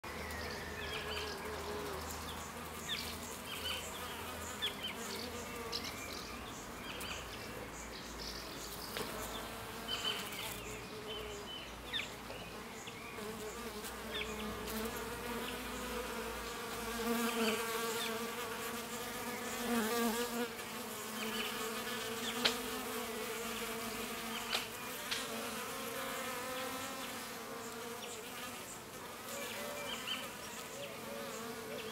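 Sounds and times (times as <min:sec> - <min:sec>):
honeybees buzzing: 0:00.1 - 0:31.9.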